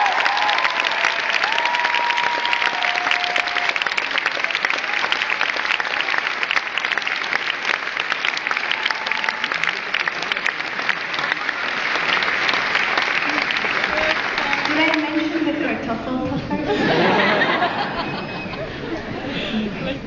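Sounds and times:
crowd clapping and cheering: 0:00.0 - 0:15.7
whistles from crowd: 0:18.0 - 0:18.7.

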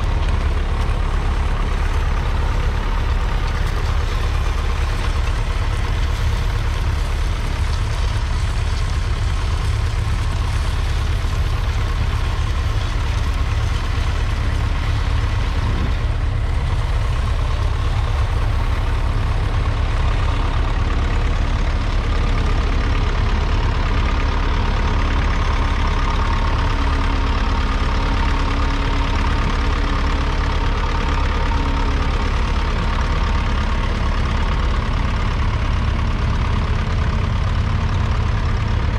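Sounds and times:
diesel engine running under load: 0:00.0 - 0:38.9.

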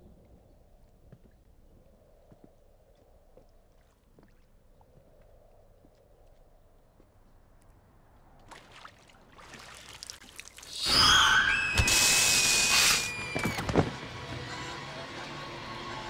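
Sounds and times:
loud shriek effect: 0:10.7 - 0:13.8.

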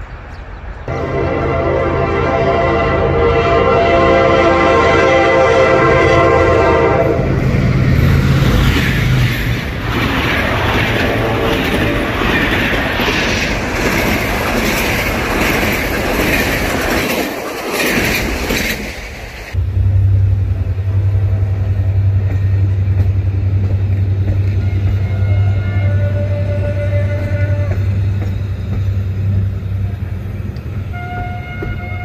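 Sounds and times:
locomotive engine passing: 0:00.1 - 0:32.0
train horn blast: 0:00.9 - 0:07.5, 0:19.5 - 0:23.3, 0:24.5 - 0:28.2, 0:29.6 - 0:32.0
train wheels clickety-clack: 0:08.0 - 0:19.6, 0:21.9 - 0:32.0.

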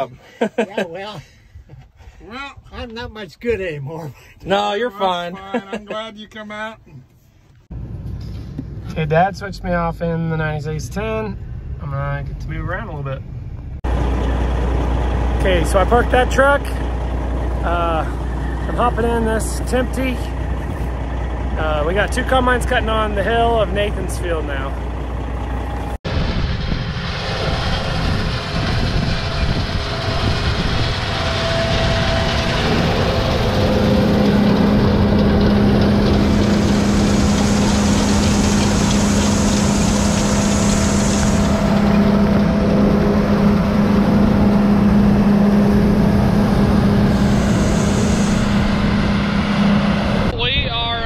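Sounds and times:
strong steady hum: 0:13.8 - 0:51.0
heavy farm machinery din: 0:13.9 - 0:51.0.

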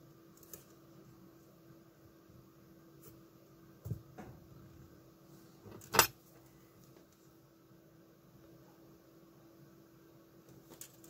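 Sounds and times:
faint steady hum: 0:00.0 - 0:11.0
wires and tools handled: 0:00.3 - 0:00.8, 0:10.5 - 0:11.0.

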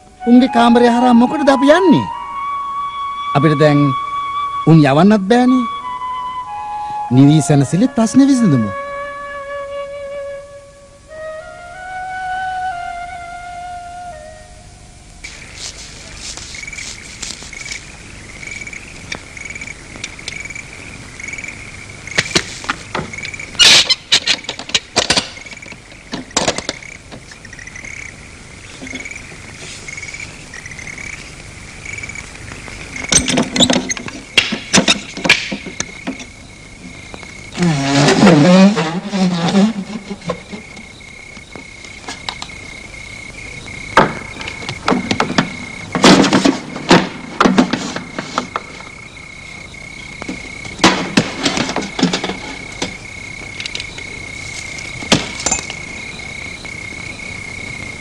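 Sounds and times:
crickets chirping: 0:00.0 - 0:58.0
sharp knocks and clicks: 0:22.1 - 0:27.4, 0:33.0 - 0:36.4, 0:43.9 - 0:48.7
wavering creak: 0:36.2 - 0:41.4.

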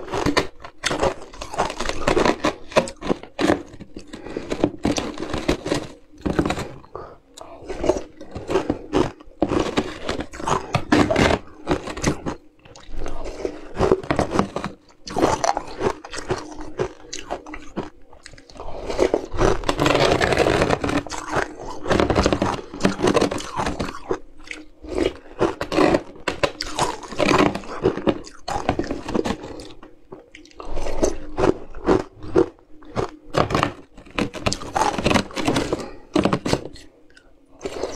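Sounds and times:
metal spoon scraping plastic tub: 0:00.0 - 0:06.9, 0:18.9 - 0:29.8, 0:32.0 - 0:36.8
ice crunched between teeth: 0:00.0 - 0:37.9.

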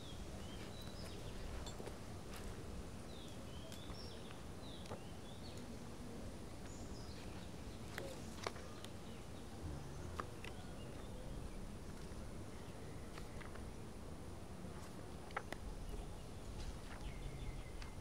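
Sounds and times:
low outdoor background noise: 0:00.0 - 0:18.0
small birds chirping: 0:00.0 - 0:18.0.

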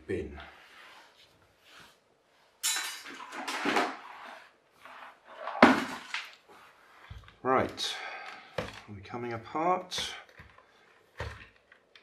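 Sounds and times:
household objects clattering: 0:02.6 - 0:04.5, 0:05.1 - 0:08.9, 0:09.9 - 0:12.0.

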